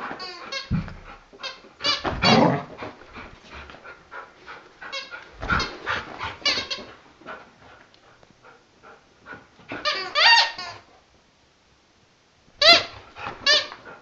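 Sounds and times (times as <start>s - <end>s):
squeaky toy squeaks: 9.8s - 10.8s, 12.6s - 13.8s.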